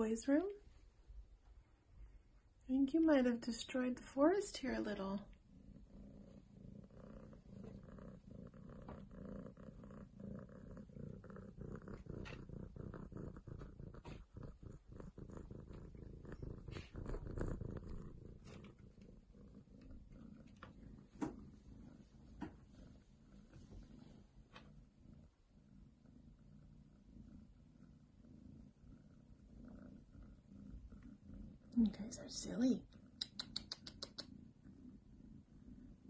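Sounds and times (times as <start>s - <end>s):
cat purring: 0.0s - 36.0s
sharp clicks: 33.2s - 34.3s.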